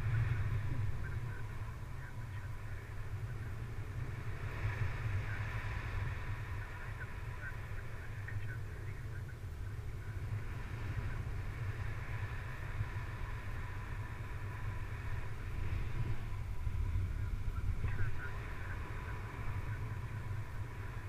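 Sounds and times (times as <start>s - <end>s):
wind buffeting microphone: 0.0s - 21.0s.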